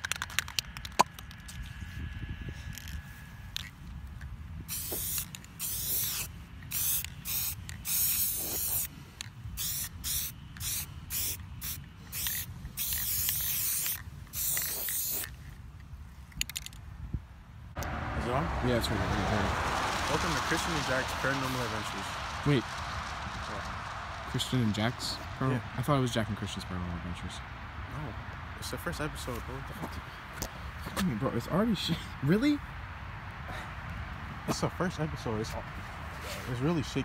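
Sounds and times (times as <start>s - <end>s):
spray-paint can hissing: 4.7s - 8.9s, 9.6s - 15.3s.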